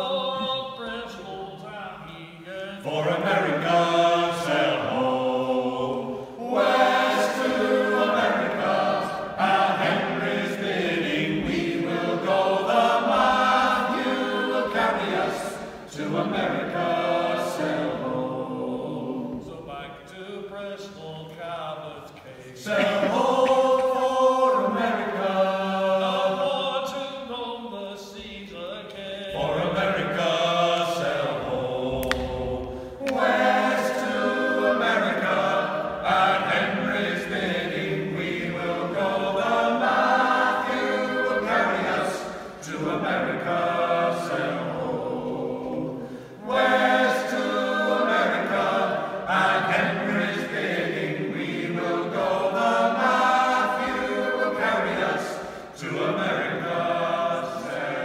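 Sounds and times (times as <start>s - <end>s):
group singing folk song in harmony: 0.0s - 58.0s.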